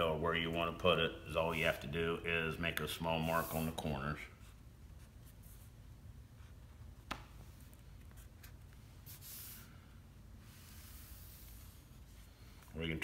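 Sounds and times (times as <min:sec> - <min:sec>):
low room hum: 0:00.0 - 0:13.0
marker pen strokes: 0:03.2 - 0:12.9.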